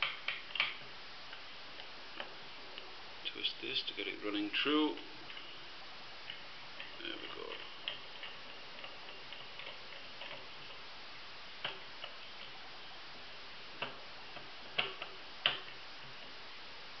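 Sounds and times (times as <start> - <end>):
sharp plastic clicks: 0.0 - 2.3.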